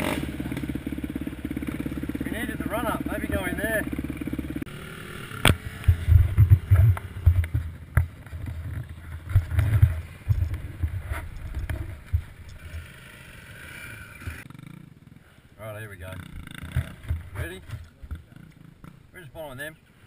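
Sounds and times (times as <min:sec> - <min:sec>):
camera rustling: 0:05.4 - 0:12.9
camera buffeting and knocks: 0:05.5 - 0:12.8.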